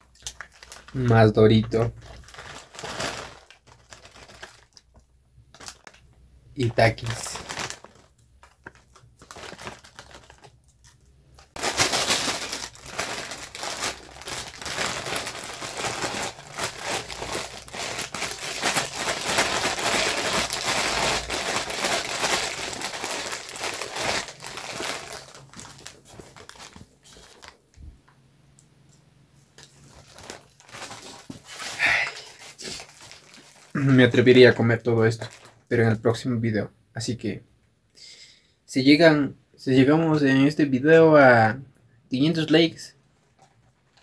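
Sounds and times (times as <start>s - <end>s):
plastic chip bags crinkling: 0.0s - 27.9s, 29.6s - 35.7s.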